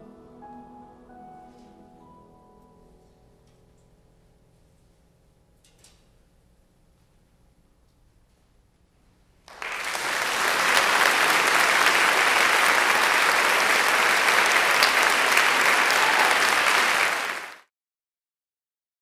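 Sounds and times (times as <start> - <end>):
audience applause: 9.5 - 17.7.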